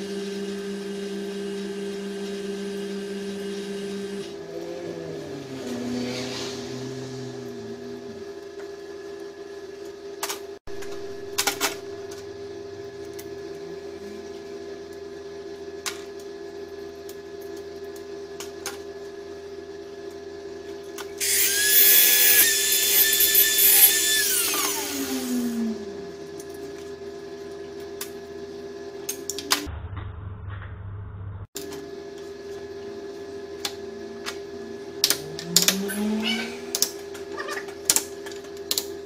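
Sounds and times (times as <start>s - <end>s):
power tool whining: 21.2s - 26.6s, 35.0s - 37.2s.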